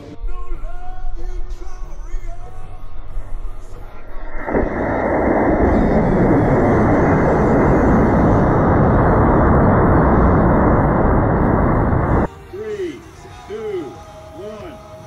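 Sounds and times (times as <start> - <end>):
rocket motor roaring: 4.2 - 12.3.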